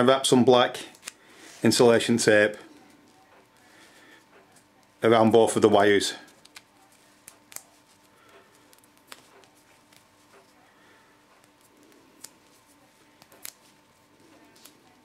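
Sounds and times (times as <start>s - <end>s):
tape wrapping clicks and crinkles: 0.9s - 1.2s, 6.2s - 10.5s, 11.3s - 15.0s.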